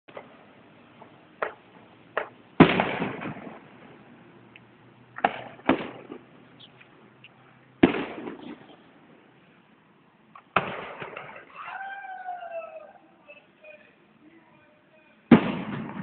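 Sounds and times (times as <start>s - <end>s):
firework shells booming: 0.1s - 4.0s, 5.1s - 6.4s, 7.8s - 8.9s, 10.4s - 11.6s, 15.3s - 16.0s.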